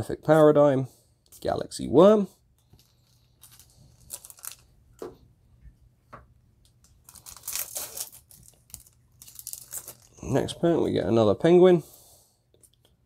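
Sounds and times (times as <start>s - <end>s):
foil wrapper crinkling: 2.6s - 4.7s, 6.9s - 10.3s
foil wrapper tearing: 2.8s - 4.7s, 7.0s - 10.3s.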